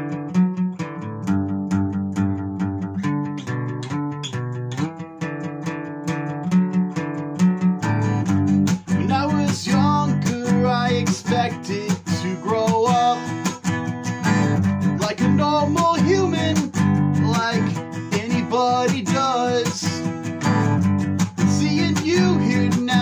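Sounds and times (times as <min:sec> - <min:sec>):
strummed acoustic guitar: 0:00.0 - 0:23.0
man singing: 0:08.9 - 0:13.6, 0:14.2 - 0:20.7, 0:21.3 - 0:23.0.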